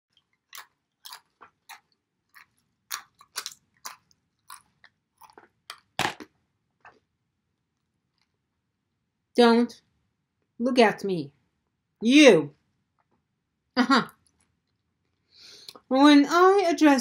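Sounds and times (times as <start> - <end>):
person chewing crunchy snack: 0.1 - 7.1.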